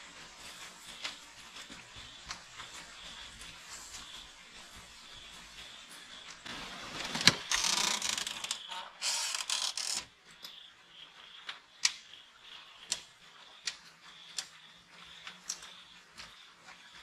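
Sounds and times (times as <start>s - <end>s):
rustling scraping noise: 5.9s - 10.1s.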